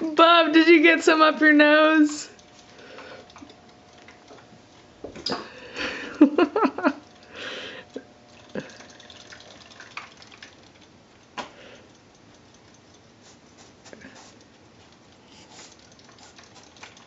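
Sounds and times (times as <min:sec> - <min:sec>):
water splashes and drips: 0:08.3 - 0:13.2, 0:15.1 - 0:17.0.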